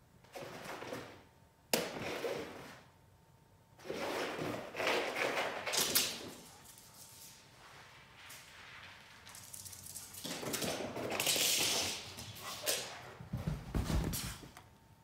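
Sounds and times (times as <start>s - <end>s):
dog paws scrabbling on floor: 4.4s - 14.6s.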